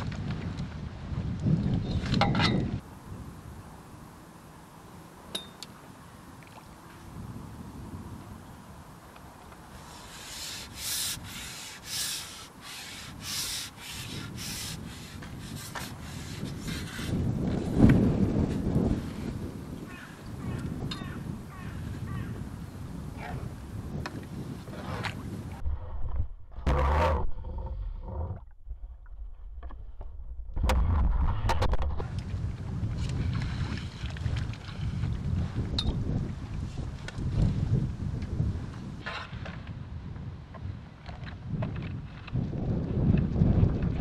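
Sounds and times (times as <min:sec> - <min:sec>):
low wind rumble on microphone: 0:00.0 - 0:05.2, 0:05.8 - 0:44.0
fishing pole sections scraping: 0:09.8 - 0:17.3
muffled water sloshing and splashing: 0:28.3 - 0:37.6.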